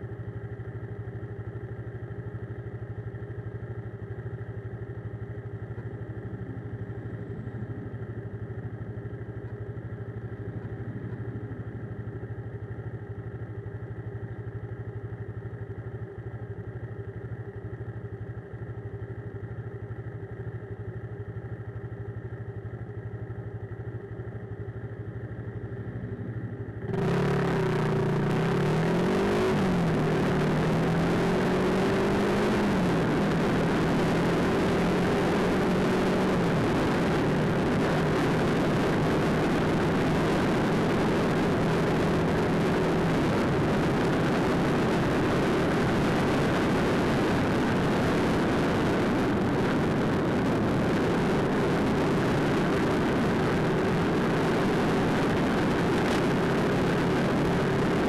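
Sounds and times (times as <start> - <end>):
wind and road noise: 0.0 - 58.0
steady hum: 24.4 - 58.0
motorcycle engine revving: 25.7 - 58.0.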